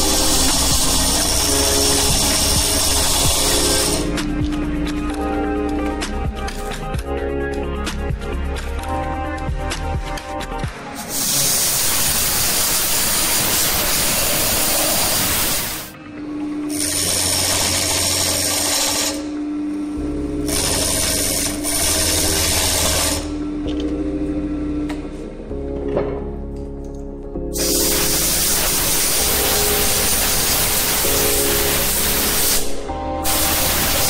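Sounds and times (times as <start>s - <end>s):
turning tool cutting wood: 0.0s - 4.2s, 11.0s - 15.9s, 16.7s - 19.3s, 20.5s - 23.3s
wood lathe humming: 0.0s - 4.2s, 16.7s - 19.4s, 20.5s - 23.3s.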